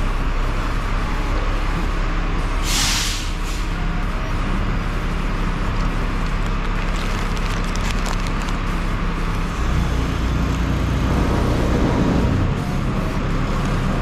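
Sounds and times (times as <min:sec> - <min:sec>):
truck engine running: 0:00.0 - 0:14.0
air hiss burst: 0:02.6 - 0:03.8.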